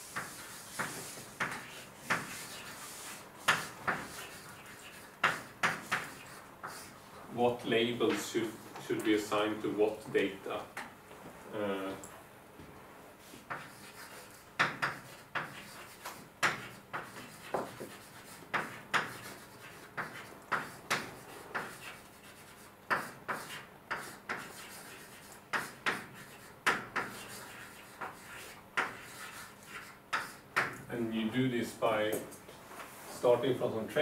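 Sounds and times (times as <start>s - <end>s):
writing taps and scrapes on board: 0.0s - 6.9s, 13.3s - 30.9s.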